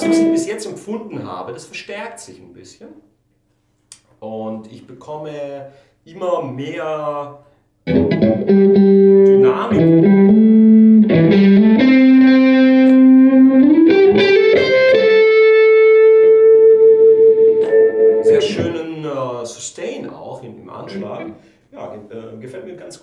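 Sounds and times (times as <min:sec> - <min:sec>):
overdriven electric guitar lead: 0:00.0 - 0:00.4, 0:07.9 - 0:18.8, 0:20.9 - 0:21.4.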